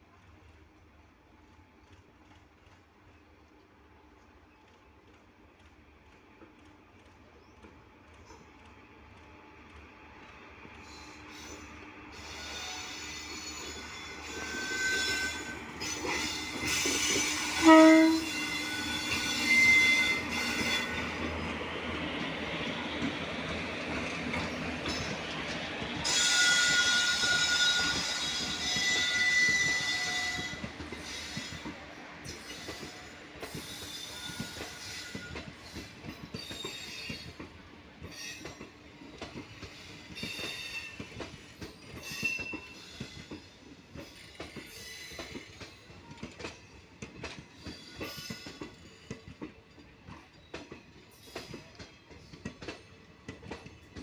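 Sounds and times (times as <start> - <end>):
train wheels squealing: 10.2 - 54.0
train horn blast: 17.4 - 20.9.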